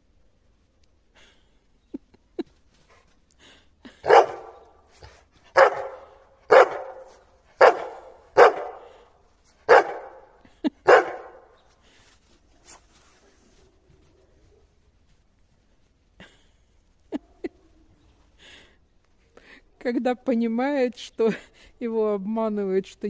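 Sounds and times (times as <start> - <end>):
dog barking: 4.0 - 4.7, 5.5 - 9.0, 9.7 - 11.5.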